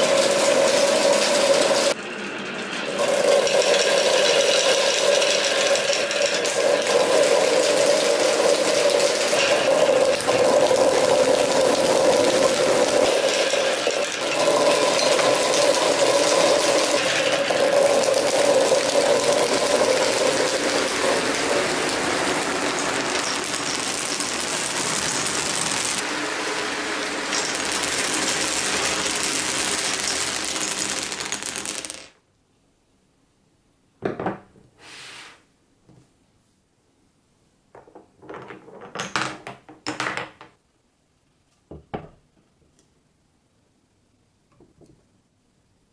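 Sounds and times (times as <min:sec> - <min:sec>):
marbles rolling and clattering: 0:00.0 - 0:32.2, 0:37.8 - 0:40.6.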